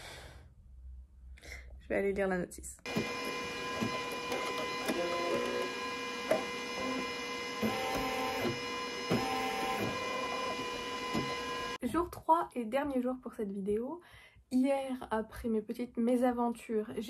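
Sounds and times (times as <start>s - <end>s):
embroidery machine whirring: 2.9s - 11.8s.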